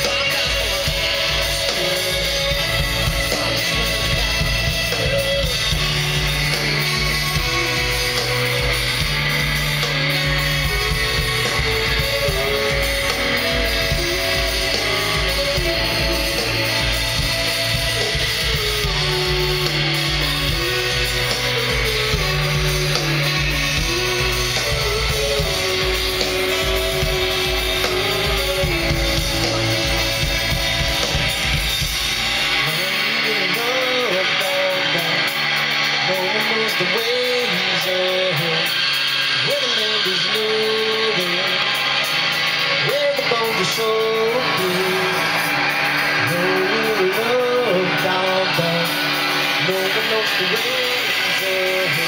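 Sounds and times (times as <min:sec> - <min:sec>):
deep bass: 0:00.0 - 0:36.5
electric guitar: 0:00.0 - 0:52.0
live rock band playing: 0:00.0 - 0:52.0
saxophones and trumpet held notes: 0:00.0 - 0:52.0.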